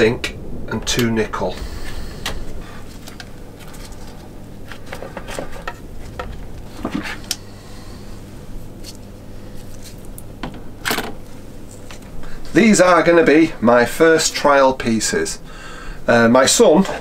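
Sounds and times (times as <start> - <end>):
electric water pump humming: 0.0 - 15.9.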